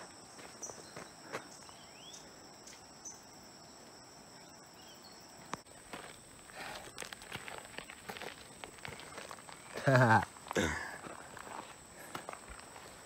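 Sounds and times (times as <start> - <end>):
high-pitched insect chorus: 0.0 - 13.0.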